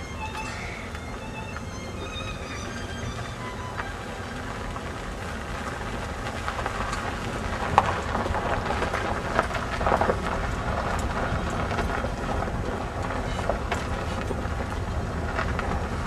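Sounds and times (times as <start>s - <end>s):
car road and wind noise: 0.0s - 16.0s
faint clicks and crackles: 0.3s - 16.0s.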